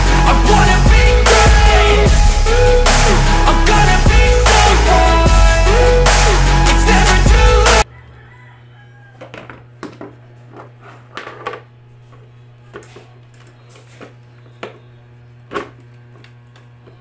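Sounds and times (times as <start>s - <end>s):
background music: 0.0s - 7.9s.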